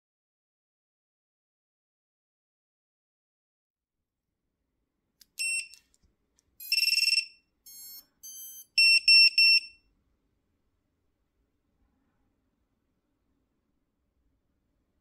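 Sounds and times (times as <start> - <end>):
shrill high beeps: 6.6 - 9.8.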